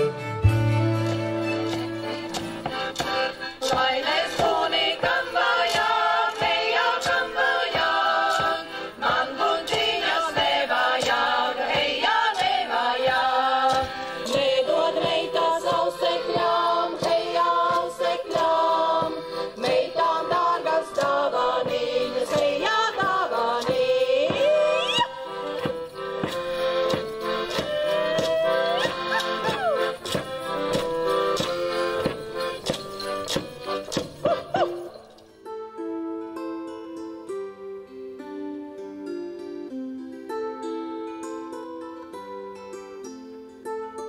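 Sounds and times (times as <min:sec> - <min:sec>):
accordion: 0:00.0 - 0:44.0
women singing together: 0:03.6 - 0:25.3
percussive beat: 0:19.0 - 0:34.9.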